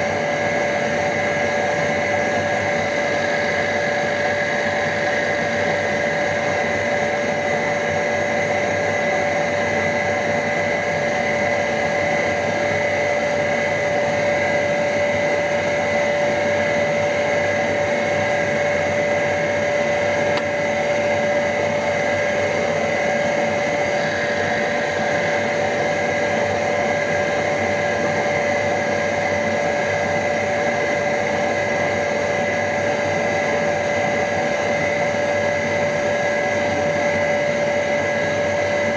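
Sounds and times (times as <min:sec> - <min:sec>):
surface grinder whining: 0:23.7 - 0:26.6.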